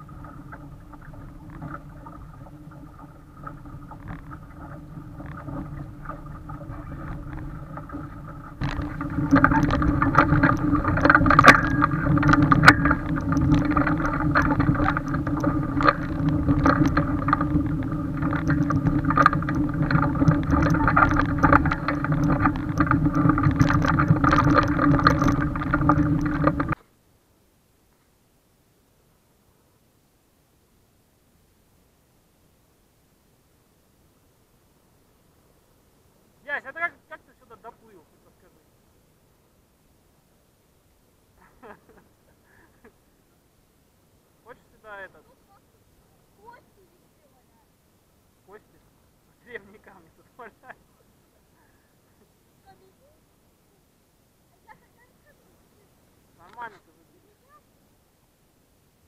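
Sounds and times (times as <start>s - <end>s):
water splashing along boat hull: 0.0s - 26.8s
small knocks: 3.4s - 26.8s.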